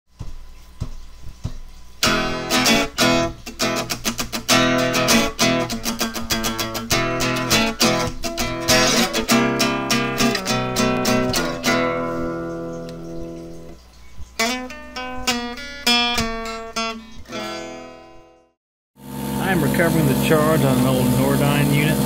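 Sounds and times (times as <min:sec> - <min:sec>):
guitar strummed chords: 0:02.0 - 0:13.8, 0:14.4 - 0:18.5.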